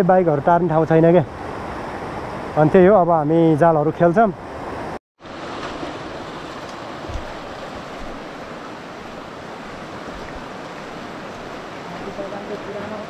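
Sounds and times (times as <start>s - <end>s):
river rushing: 4.4s - 13.0s.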